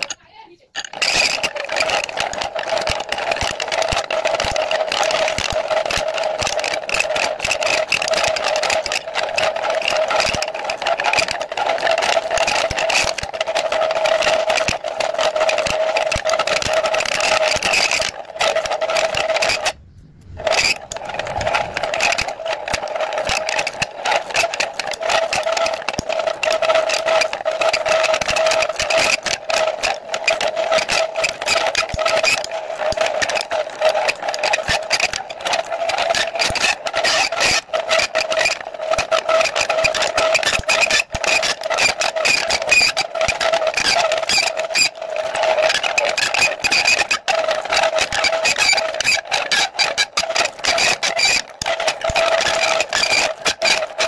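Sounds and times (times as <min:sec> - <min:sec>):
scraping crackle of metal cutting: 0:06.4 - 0:44.9
motor whine: 0:17.0 - 0:23.8.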